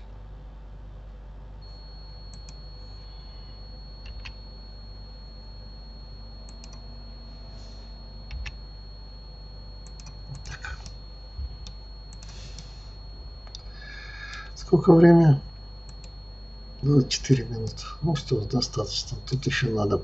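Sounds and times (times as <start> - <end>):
faint high whine: 0.0 - 20.0
steady low hum: 0.0 - 20.0
keyboard and mouse clicking: 4.0 - 4.4, 6.5 - 6.8, 8.3 - 8.6, 9.8 - 11.0.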